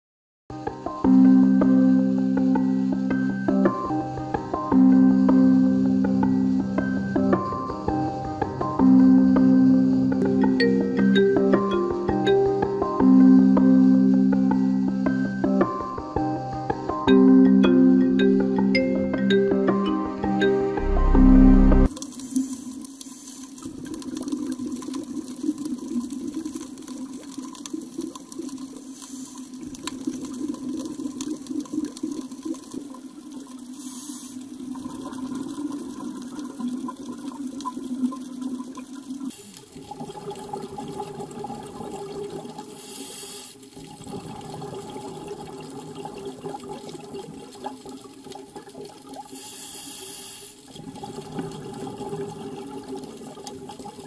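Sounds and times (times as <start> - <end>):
hissing bubbles: 21.5 - 54.0
water bubbling underwater: 43.8 - 49.3, 50.7 - 54.0.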